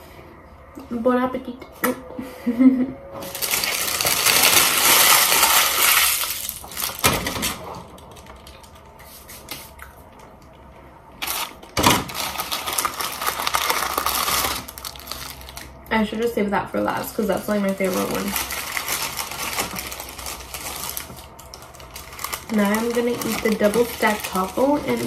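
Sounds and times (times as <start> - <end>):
paper wrapper crinkling: 3.2 - 9.0, 11.2 - 15.8, 17.4 - 25.0.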